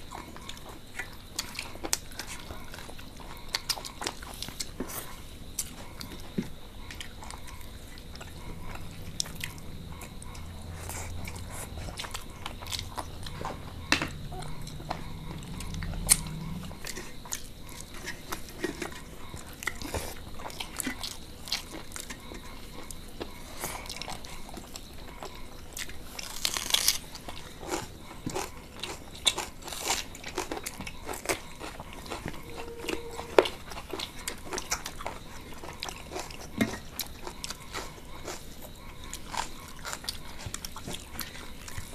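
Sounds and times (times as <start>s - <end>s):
chewing and lip smacks: 0.0s - 41.9s
low hum: 7.5s - 17.8s, 32.3s - 33.8s.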